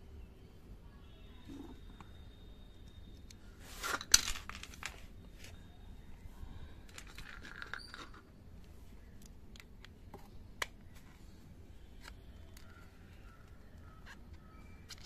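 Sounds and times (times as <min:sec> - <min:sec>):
plastic clicks: 0:09.1 - 0:11.0.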